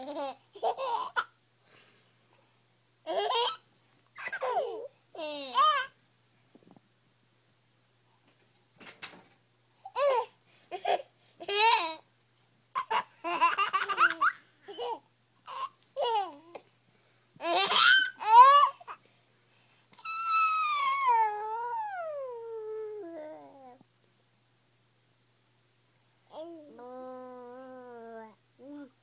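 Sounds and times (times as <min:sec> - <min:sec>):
baby babbling: 0:17.4 - 0:19.0, 0:20.0 - 0:23.8, 0:26.3 - 0:29.0.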